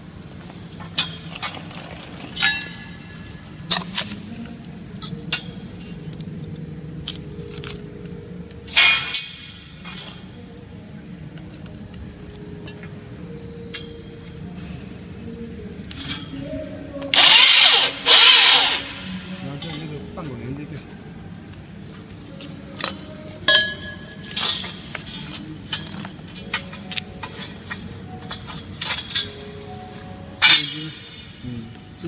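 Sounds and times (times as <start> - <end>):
low steady hum: 0.0 - 32.0
metal tubes clanking on concrete: 23.5 - 26.6, 30.4 - 31.4.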